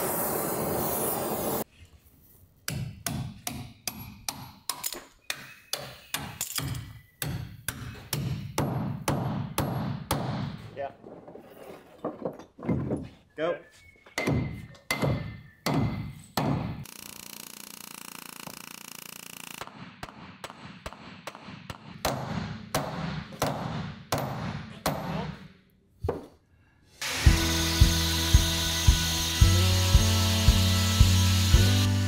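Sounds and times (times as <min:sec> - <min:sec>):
hammer striking rivets: 0:02.7 - 0:10.6, 0:14.2 - 0:17.0, 0:19.4 - 0:25.2.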